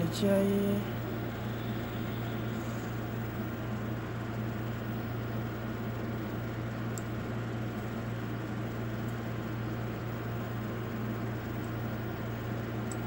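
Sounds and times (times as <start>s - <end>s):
steady low hum with hiss: 0.0s - 13.0s.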